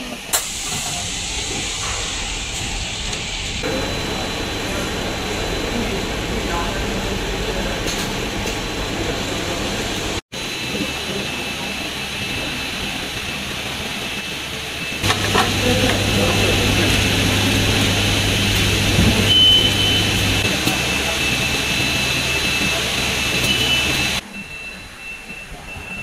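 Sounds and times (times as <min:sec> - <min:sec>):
machine running with high whine: 0:00.0 - 0:25.8
short high beep: 0:19.2 - 0:20.2.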